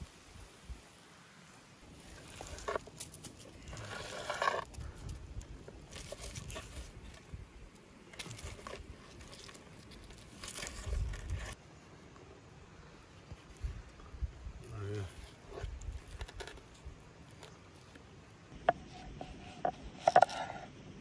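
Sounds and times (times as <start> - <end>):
scraping and crackling handling noise: 1.9 - 11.6, 15.3 - 20.8.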